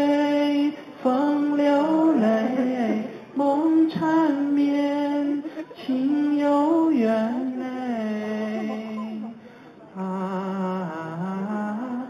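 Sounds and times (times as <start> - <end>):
man singing a slow ballad: 0.0 - 12.0.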